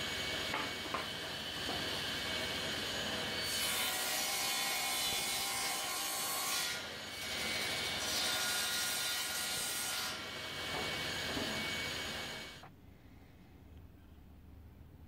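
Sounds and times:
table saw cutting plywood: 0.0 - 12.6.

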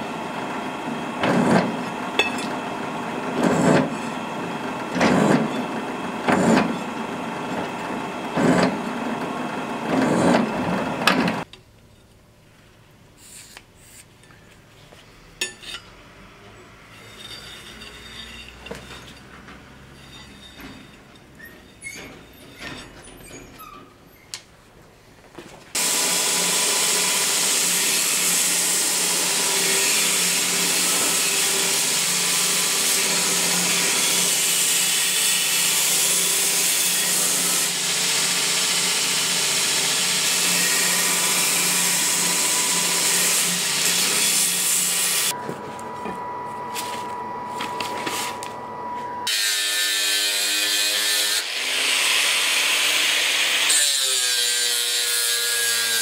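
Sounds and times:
angle grinder whine: 0.0 - 11.5, 25.8 - 52.2
belt grinder grinding steel: 1.2 - 2.3, 3.3 - 11.5, 16.9 - 23.4, 25.8 - 45.4, 49.2 - 56.0.

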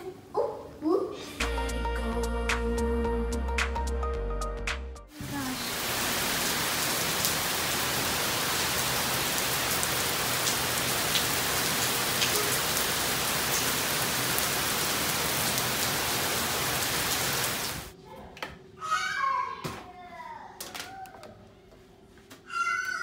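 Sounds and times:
steady rain falling: 5.1 - 17.9.

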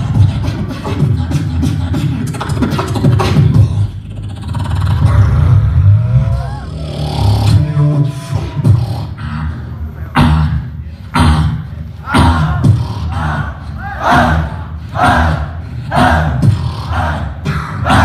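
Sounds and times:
beatboxing through microphone: 0.0 - 18.0
gliding pitched vocal line: 5.0 - 18.0.

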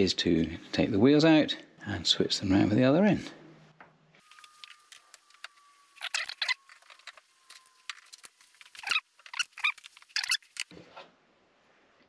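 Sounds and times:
faint high whine: 4.2 - 9.0.

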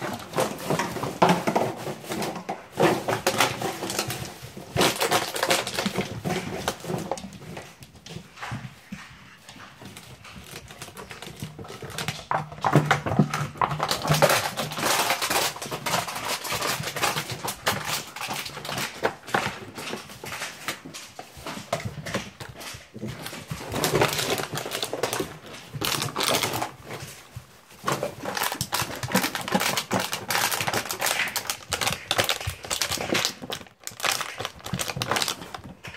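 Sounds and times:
plastic crinkling and rattling: 0.0 - 35.9
puppies scuffling: 0.0 - 35.9.

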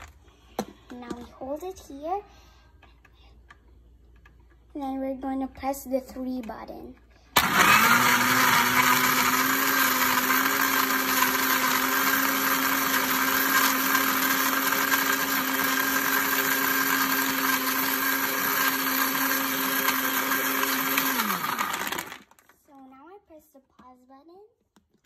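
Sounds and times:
blender motor running: 7.4 - 22.4.

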